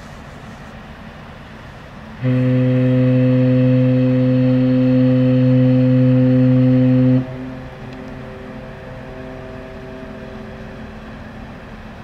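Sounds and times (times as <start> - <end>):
deep ship horn blast: 2.2 - 12.0.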